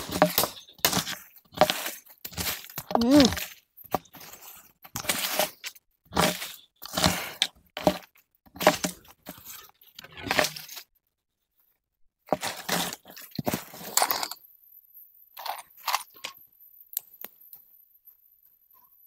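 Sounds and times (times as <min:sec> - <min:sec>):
pole raking dry leaves and twigs: 0:00.0 - 0:10.8, 0:12.3 - 0:14.3.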